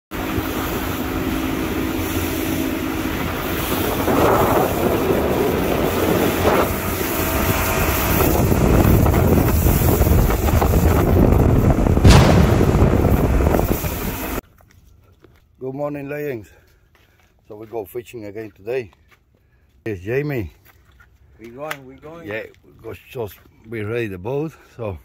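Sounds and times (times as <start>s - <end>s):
motorboat motor drone: 0.2s - 14.4s
wind noise on microphone: 2.2s - 14.4s
loud thump: 12.0s - 14.1s.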